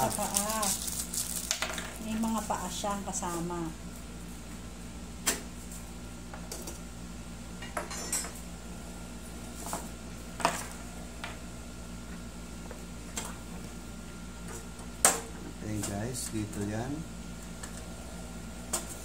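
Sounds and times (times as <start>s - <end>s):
metal burner parts clinking on glass: 7.6s - 8.3s.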